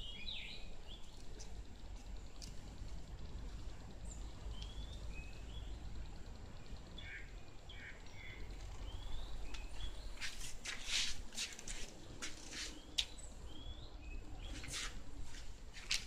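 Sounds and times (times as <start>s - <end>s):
steady low rumble: 0.0s - 10.6s.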